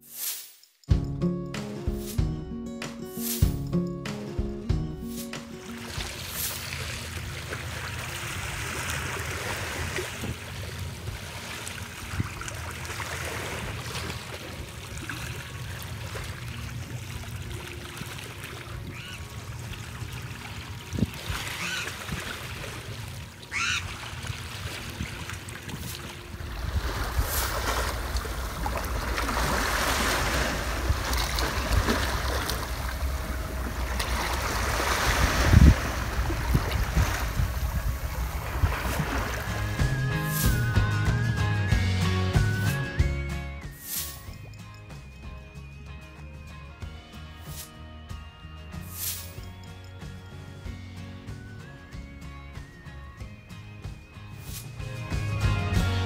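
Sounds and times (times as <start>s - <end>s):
wind on microphone: 20.8s - 22.4s, 24.6s - 40.8s
waves splashing on rocks: 24.1s - 39.7s.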